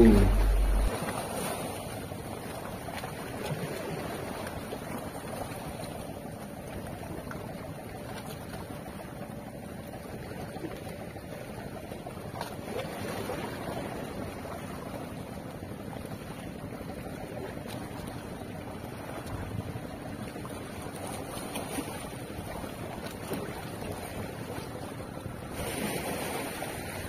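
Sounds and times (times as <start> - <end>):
wind on microphone: 0.0 - 0.9
waves lapping on rocks: 0.0 - 27.0.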